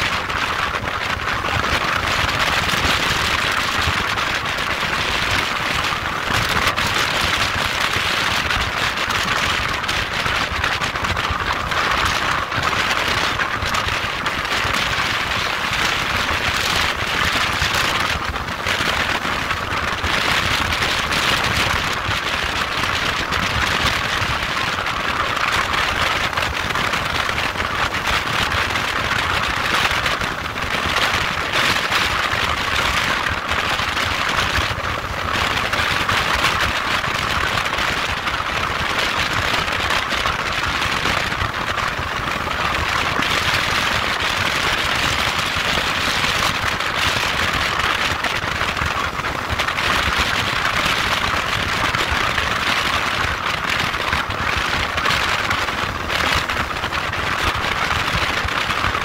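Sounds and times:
wind over microphone: 0:00.0 - 0:59.0.

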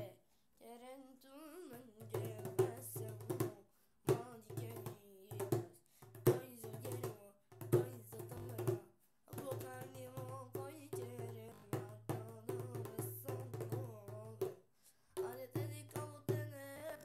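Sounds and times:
person singing: 0:00.0 - 0:14.6, 0:15.2 - 0:17.0
hand drum played: 0:02.1 - 0:14.6.

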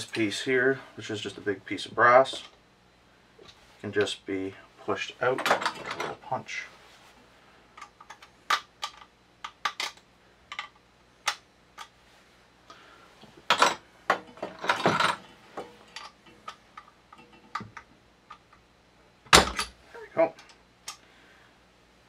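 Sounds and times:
metal parts clicking and clattering: 0:05.4 - 0:06.2, 0:13.5 - 0:18.6.

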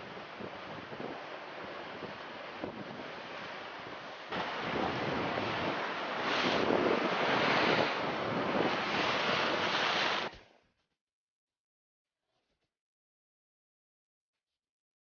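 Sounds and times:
sea waves breaking on rocks: 0:00.0 - 0:10.3
wind buffeting microphone: 0:00.0 - 0:10.3.

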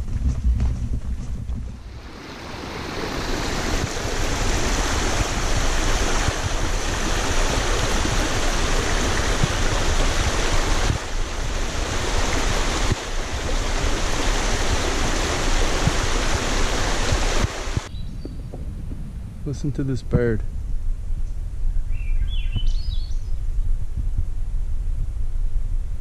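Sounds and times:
low rumble: 0:00.0 - 0:02.1, 0:18.1 - 0:26.0
stream water rushing: 0:01.8 - 0:17.9.

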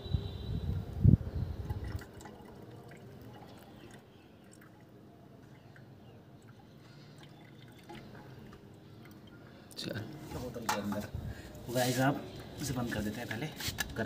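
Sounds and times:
drink bubbling with small pops: 0:01.6 - 0:05.0, 0:07.3 - 0:09.4.

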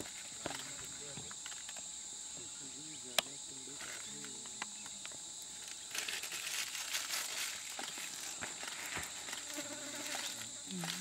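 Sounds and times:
insects droning: 0:00.0 - 0:11.0.

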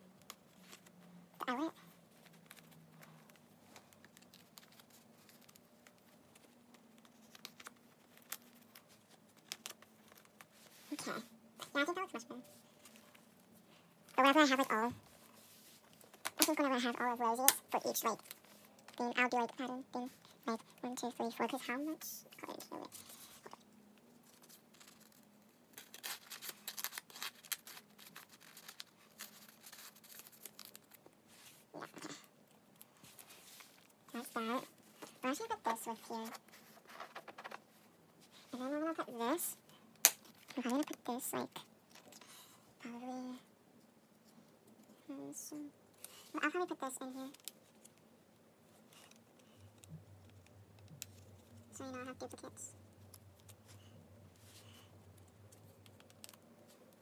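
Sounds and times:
faint low hum: 0:00.0 - 0:57.0
plastic binder page rustling: 0:00.3 - 0:11.1, 0:22.4 - 0:32.1, 0:32.7 - 0:39.4.

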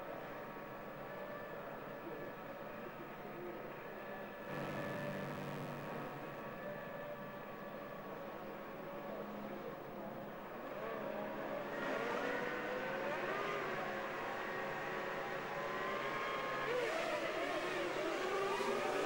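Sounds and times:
racing car engines revving: 0:04.5 - 0:06.6, 0:10.6 - 0:19.0.

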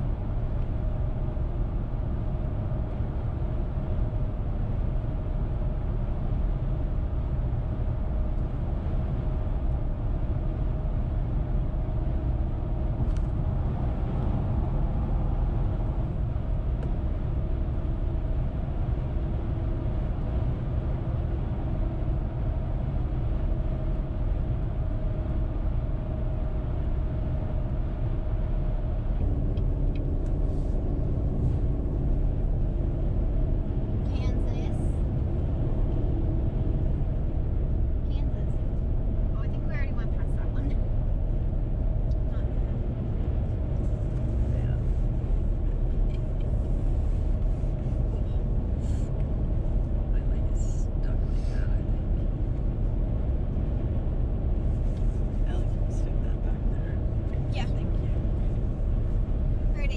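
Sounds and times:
car road noise from inside cabin: 0:00.0 - 0:59.9.

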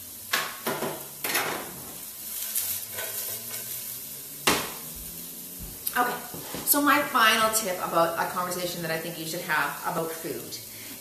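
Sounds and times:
noodles sizzling in a pan: 0:00.0 - 0:11.0
utensil stirring and scraping: 0:02.3 - 0:04.0.

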